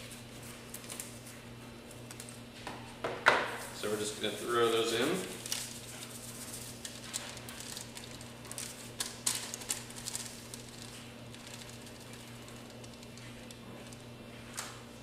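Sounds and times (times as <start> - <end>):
steady low hum: 0.0 - 15.0
paper packets crinkling: 4.2 - 14.1.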